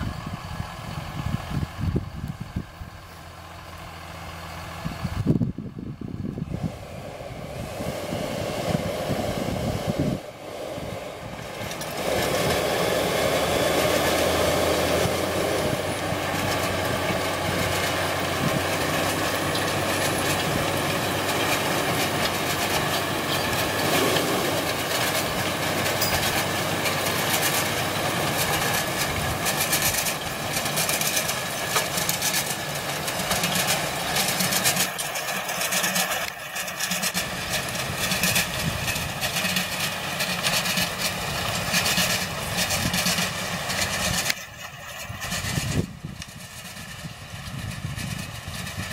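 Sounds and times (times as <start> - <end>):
tractor diesel engine running: 0.0 - 48.9
knocks and rattles: 14.9 - 48.9.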